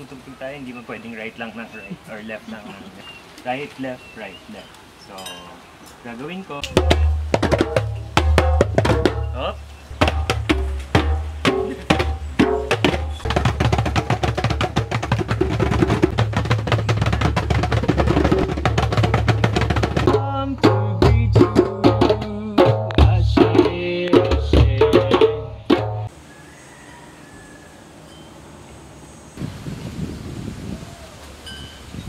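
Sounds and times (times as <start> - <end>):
hand drums playing: 6.6 - 26.1.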